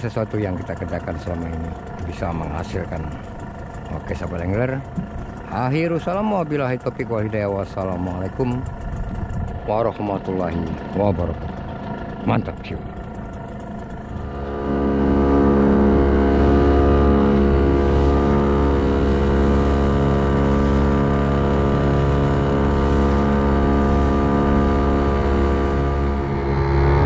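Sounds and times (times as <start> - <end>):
boat motor running: 0.0 - 27.0.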